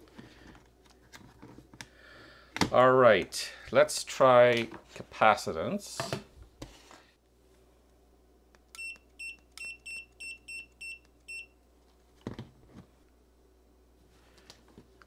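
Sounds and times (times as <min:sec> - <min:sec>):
clamp meter short high beeps: 0:08.8 - 0:11.5.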